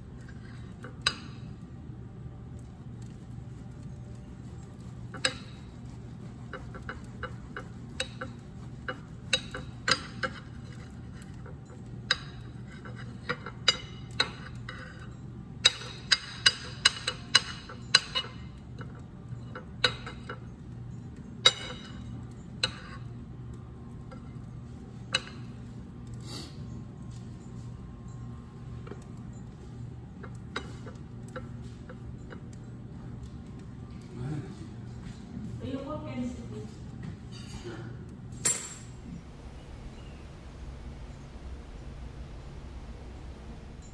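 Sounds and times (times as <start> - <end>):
low hum: 38.0 - 43.9.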